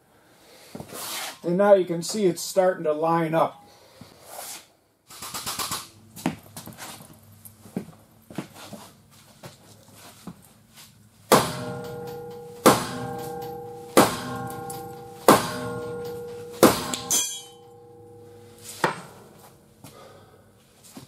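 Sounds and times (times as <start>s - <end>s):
hammer blows on ringing steel: 11.3s - 19.4s
metallic rattle: 11.4s - 19.4s.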